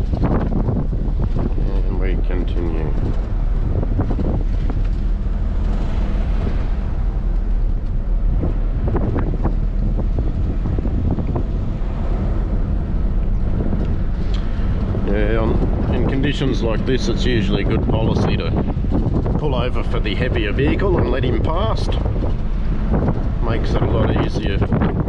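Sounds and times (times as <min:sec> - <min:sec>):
rattles and knocks: 0:00.0 - 0:25.0
vehicle engine and tyres rumbling: 0:00.0 - 0:25.0.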